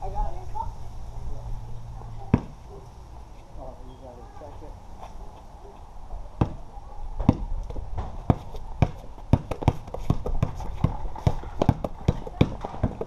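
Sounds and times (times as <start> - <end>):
basketball bouncing on concrete: 2.3 - 2.7, 6.4 - 6.6, 7.2 - 13.0.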